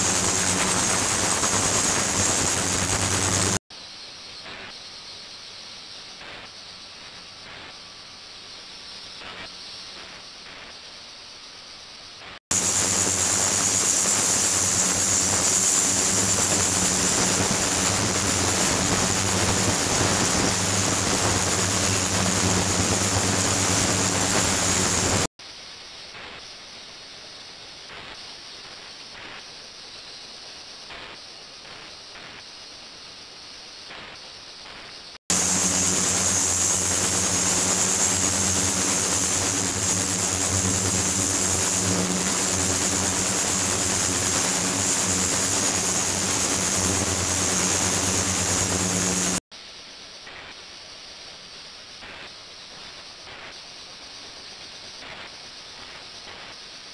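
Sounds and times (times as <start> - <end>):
water hissing in ultrasonic tank: 0.0 - 3.6, 12.5 - 25.3, 35.3 - 49.4.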